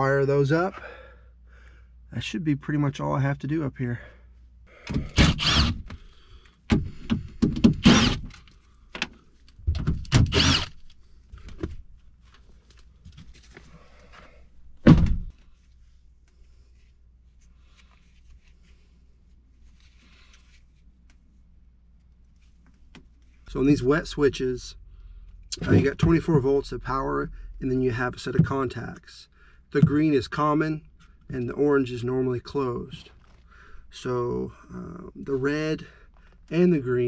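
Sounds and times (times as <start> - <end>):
faint handling sounds: 10.8 - 23.6.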